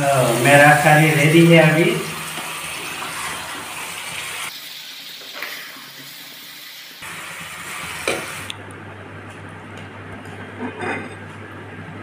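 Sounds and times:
curry sizzling in a pan: 0.0s - 8.5s.

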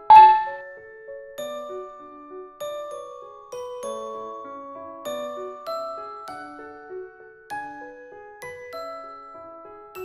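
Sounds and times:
gently struck ringing chords: 0.0s - 0.7s.

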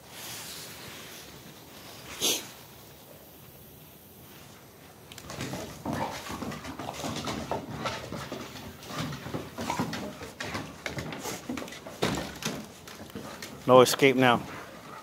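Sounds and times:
dogs scuffling on wooden decking: 4.9s - 15.0s
dogs growling: 5.3s - 15.0s.

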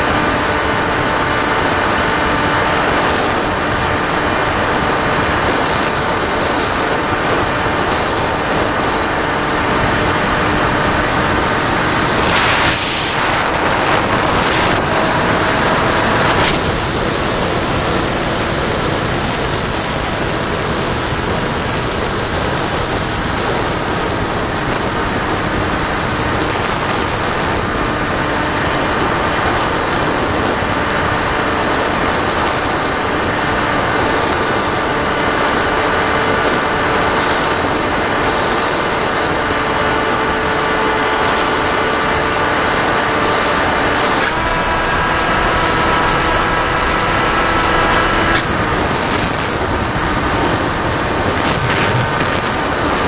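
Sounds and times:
model plane motor whine: 0.0s - 12.7s, 14.0s - 53.0s
wind rush: 3.4s - 33.9s, 44.0s - 53.0s.

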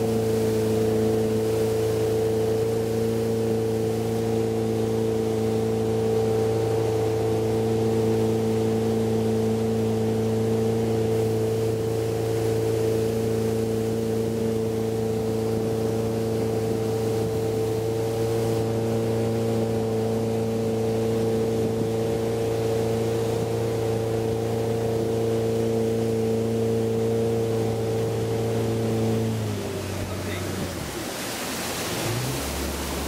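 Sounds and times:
boat engine droning: 0.0s - 33.0s.

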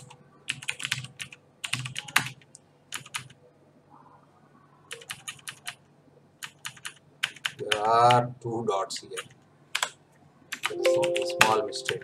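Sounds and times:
keyboard typing clicks: 9.2s - 12.0s.

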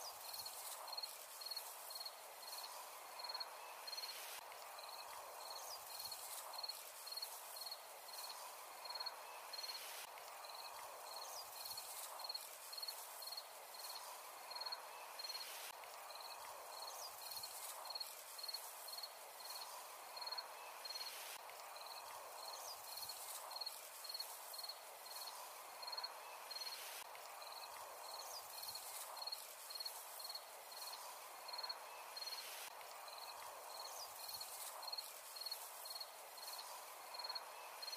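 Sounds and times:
cricket chirping: 0.2s - 4.2s, 33.1s - 37.9s.

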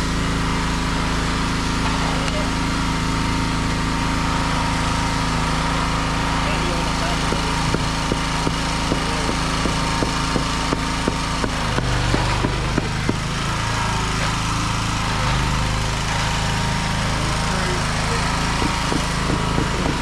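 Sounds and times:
small engine running: 0.0s - 20.0s.

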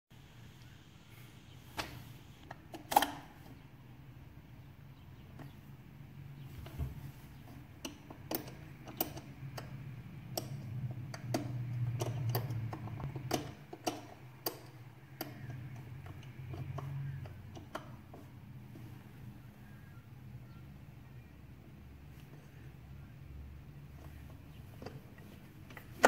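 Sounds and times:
low steady hum: 0.1s - 26.0s
combination wheels clicking: 7.4s - 18.9s.

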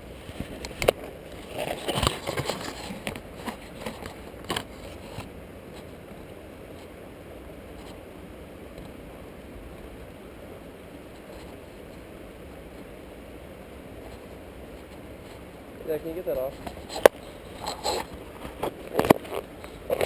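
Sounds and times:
faint outdoor hiss: 0.0s - 20.0s
fishing tackle clicks and scrapes: 0.5s - 5.3s, 16.5s - 20.0s.

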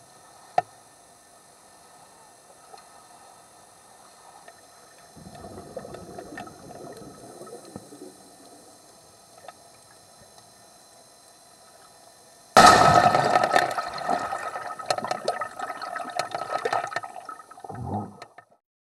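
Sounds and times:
underwater bubbling: 4.9s - 10.1s, 12.6s - 18.6s.

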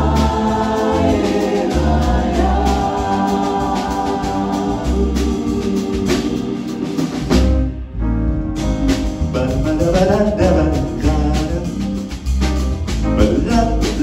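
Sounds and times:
vocal ensemble singing: 0.0s - 7.6s
band with piano bass and guitar: 0.0s - 14.0s
drum kit: 0.0s - 14.0s.

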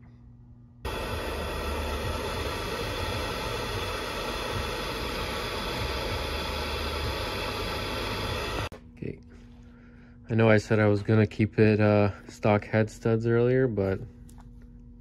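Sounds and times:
gas torch flame hissing: 0.9s - 8.7s.

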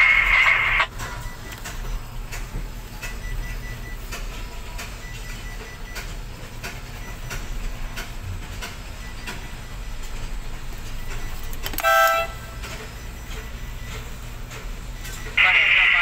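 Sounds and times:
low machine hum: 0.0s - 16.0s
horn toot: 11.8s - 12.5s.

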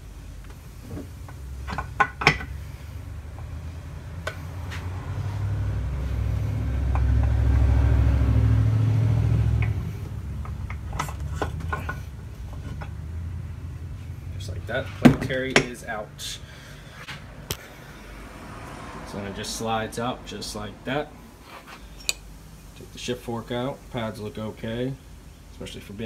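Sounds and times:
metal clinks and knocks: 10.4s - 13.0s.

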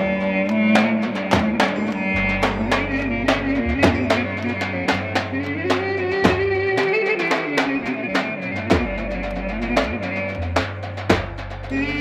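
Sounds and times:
drums quick steady beat: 0.0s - 12.0s
sliding melody line: 0.0s - 12.0s.

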